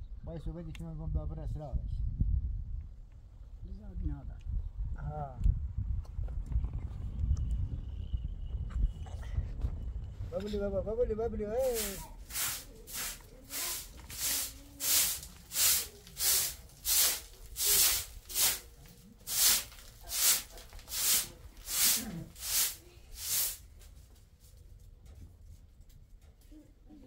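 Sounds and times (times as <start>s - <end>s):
hand broom sweeping a floor mat: 11.6s - 23.9s.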